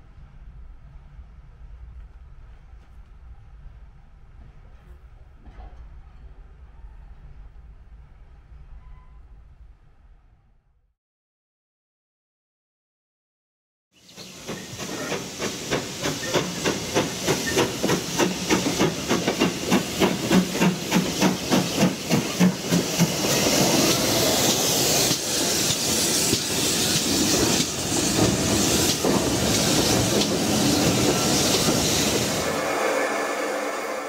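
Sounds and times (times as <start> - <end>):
steam hissing: 14.1 - 34.0
steam locomotive exhaust beats: 14.1 - 34.0.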